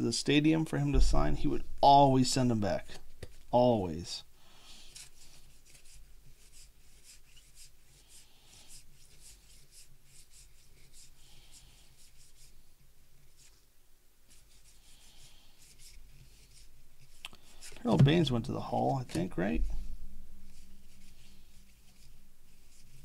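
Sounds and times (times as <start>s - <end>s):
low steady hum: 0.0s - 6.9s, 15.6s - 23.0s.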